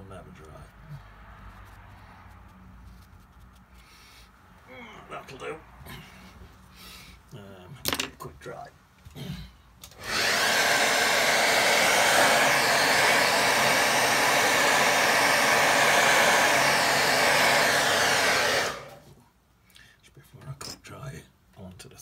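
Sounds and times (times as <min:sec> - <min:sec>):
hair dryer blowing: 0:09.9 - 0:19.2.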